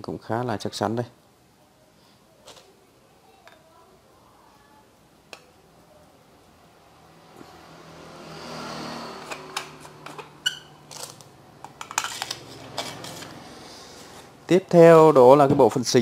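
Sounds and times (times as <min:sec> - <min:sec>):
metal grille scraping: 0:11.8 - 0:14.3.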